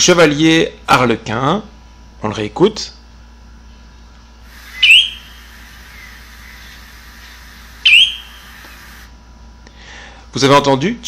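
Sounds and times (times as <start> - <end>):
bird giving sharp rising call: 4.5 - 9.1.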